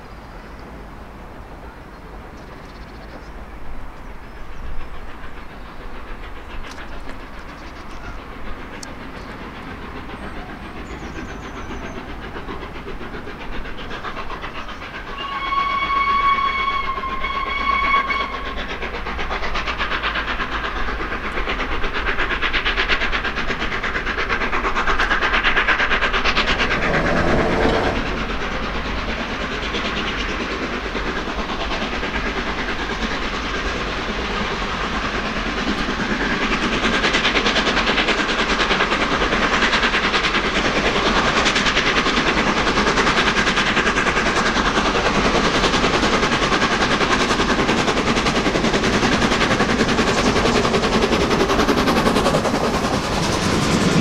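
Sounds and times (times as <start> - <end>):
steam locomotive exhaust beats: 0.0 - 54.0
steam whistle: 15.1 - 18.5, 26.7 - 28.2.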